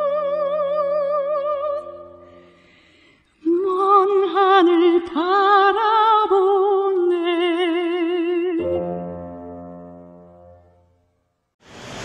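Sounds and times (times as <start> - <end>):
soprano singing unaccompanied: 3.4 - 8.8.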